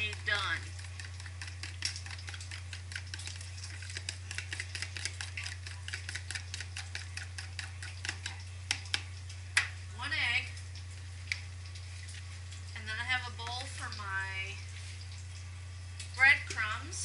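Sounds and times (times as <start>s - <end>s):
fork clicking against plastic container: 0.8s - 9.7s.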